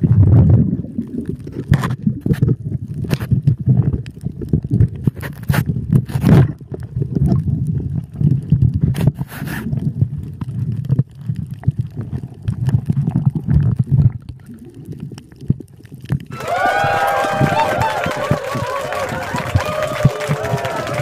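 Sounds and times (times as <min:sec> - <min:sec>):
bubbly bursts: 0:00.0 - 0:05.0, 0:09.6 - 0:21.0
underwater water churning: 0:00.0 - 0:16.3.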